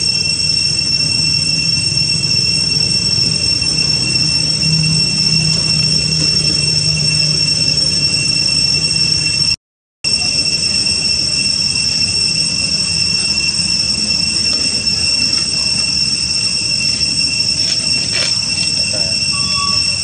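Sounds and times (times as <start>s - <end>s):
cicadas droning: 0.0s - 20.0s
low rumble: 1.1s - 9.3s.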